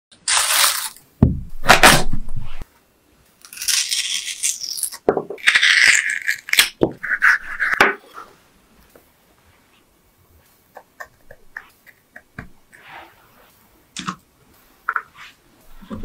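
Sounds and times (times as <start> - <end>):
metal spoon scraping potato: 5.6 - 8.3.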